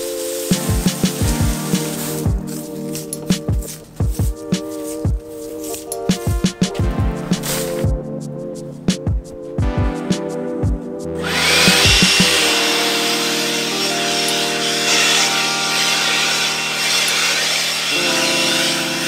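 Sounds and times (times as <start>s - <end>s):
background music: 0.0s - 19.0s
leaf blower motor whining: 11.2s - 19.0s.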